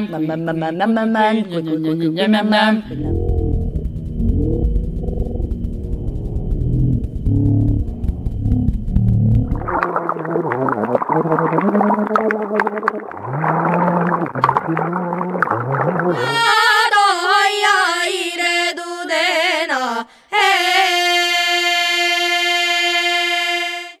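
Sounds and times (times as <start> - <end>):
gliding voice-like tones: 2.8 - 5.5, 15.1 - 16.6
steady tone rich in overtones: 2.8 - 11.2
crackling clicks: 3.2 - 10.0
girl singing: 16.1 - 24.0.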